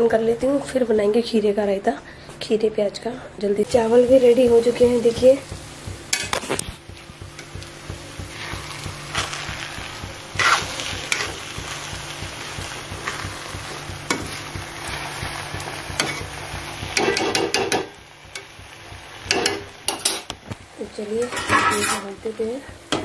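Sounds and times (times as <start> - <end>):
low sizzle: 0.0 - 23.0
metal spoon scraping metal pan: 10.3 - 11.4, 21.2 - 22.1.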